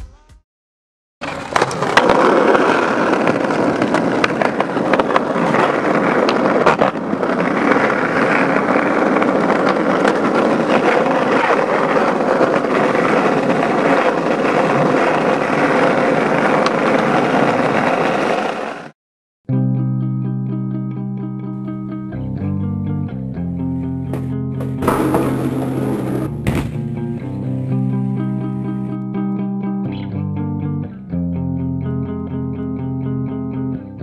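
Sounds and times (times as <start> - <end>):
skateboard clacking on ground: 1.2 - 18.9, 24.1 - 26.9
skateboard wheels rolling on concrete: 1.2 - 19.0, 23.8 - 29.0.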